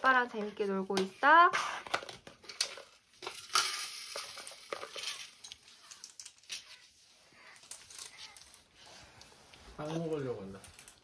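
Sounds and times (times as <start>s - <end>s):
rustling: 2.4s - 11.0s.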